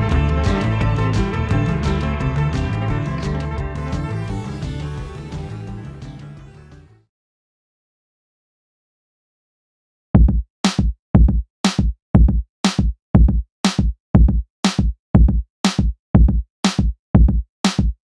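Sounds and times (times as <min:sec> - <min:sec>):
drum-machine beat: 0:10.2 - 0:18.0.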